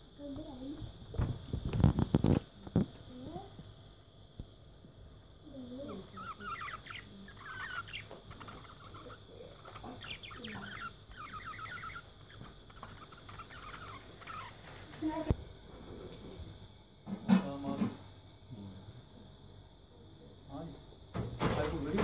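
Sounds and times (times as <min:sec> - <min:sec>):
budgerigars chattering: 0:05.8 - 0:14.9.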